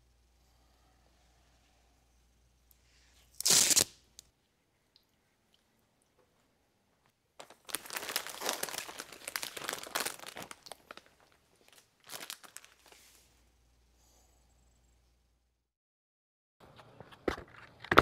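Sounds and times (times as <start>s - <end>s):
plastic bag crinkling: 7.4s - 13.0s.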